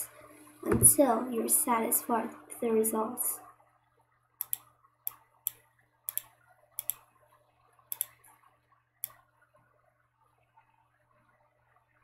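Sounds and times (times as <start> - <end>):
computer mouse clicking: 4.4 - 7.1, 7.9 - 8.4.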